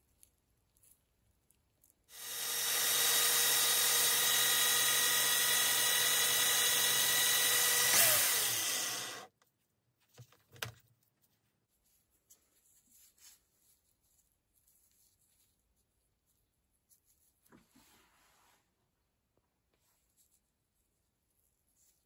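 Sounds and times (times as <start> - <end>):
electric drill spinning: 2.1 - 9.3.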